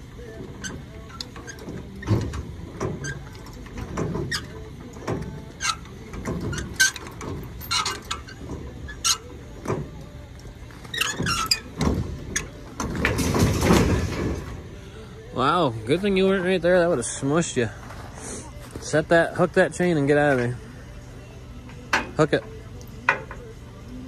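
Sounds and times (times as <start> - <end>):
metal chains clinking and rattling: 1.0 - 9.8.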